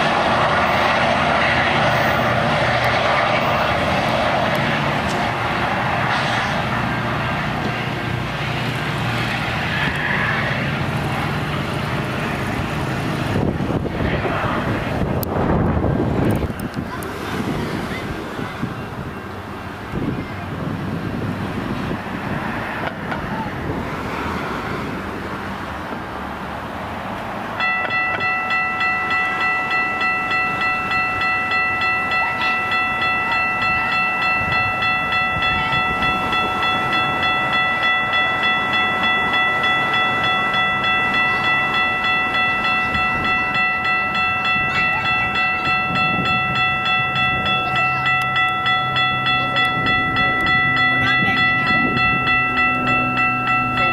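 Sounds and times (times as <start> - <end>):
railroad crossing bell ringing: 0.0 - 23.5, 27.5 - 53.9
wind noise on microphone: 12.9 - 24.1, 33.4 - 37.8, 42.6 - 53.8.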